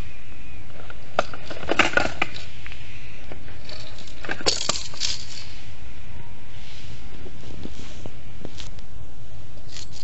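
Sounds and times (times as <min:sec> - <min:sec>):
plastic capsules rattling: 0:03.5 - 0:05.6.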